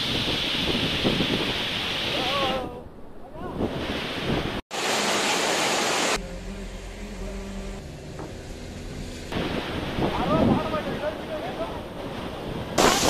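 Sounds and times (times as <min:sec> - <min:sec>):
floodwater rushing around car: 0:03.8 - 0:13.0.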